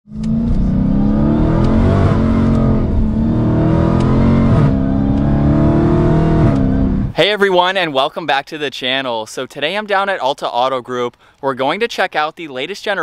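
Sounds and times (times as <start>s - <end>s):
car engine revving: 0.1s - 7.2s.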